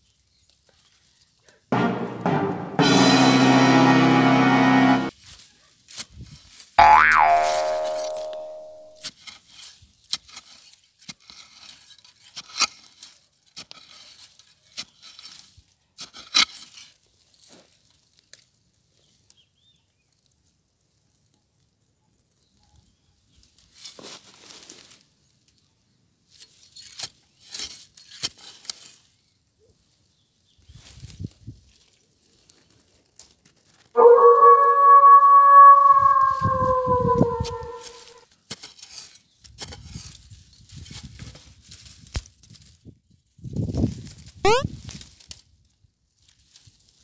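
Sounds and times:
dry grass and twigs crackling: 0.0s - 1.7s, 5.1s - 47.0s
twigs snapping: 41.8s - 42.8s.

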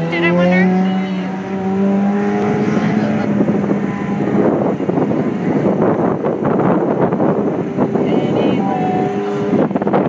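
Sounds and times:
sports car engine driving away: 0.0s - 8.0s
wind buffeting microphone: 0.0s - 10.0s.

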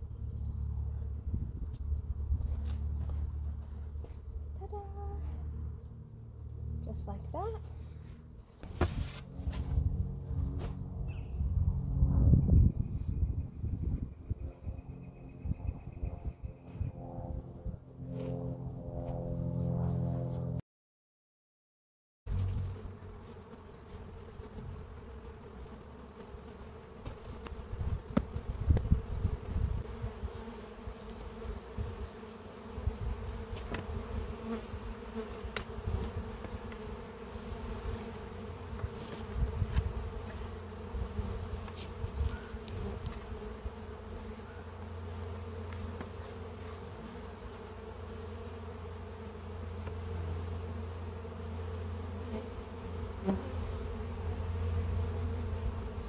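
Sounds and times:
knocks and scrapes of hive parts: 8.5s - 10.8s, 27.0s - 28.5s, 33.4s - 34.0s, 35.5s - 37.0s, 38.7s - 40.5s, 41.6s - 43.5s, 45.4s - 46.9s
bees buzzing: 22.3s - 56.0s.

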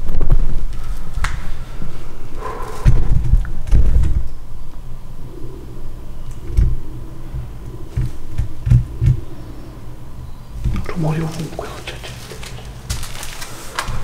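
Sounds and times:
dull low thuds: 2.8s - 4.4s, 6.4s - 10.9s.

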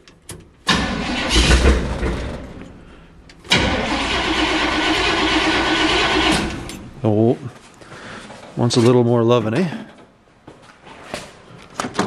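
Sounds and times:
car engine starting and running: 0.6s - 7.0s.

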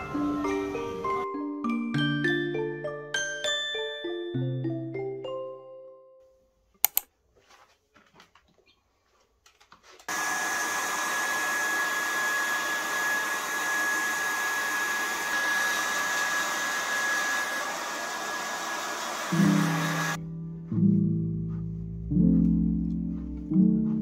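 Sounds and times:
sharp clicks: 6.8s - 7.1s
hair dryer running: 10.1s - 20.2s.

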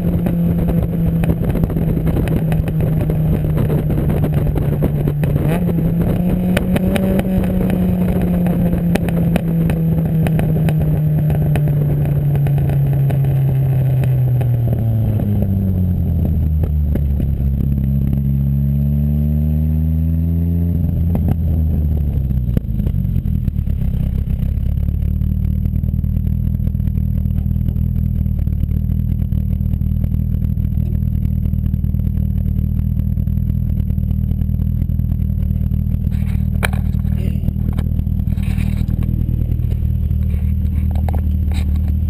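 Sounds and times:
car engine idling: 20.9s - 42.0s.

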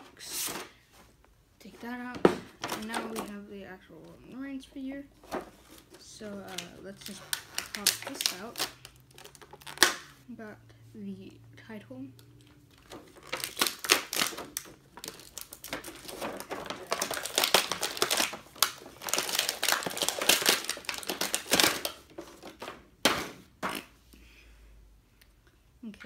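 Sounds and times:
plastic packaging crinkling: 5.2s - 10.2s, 12.4s - 22.8s.

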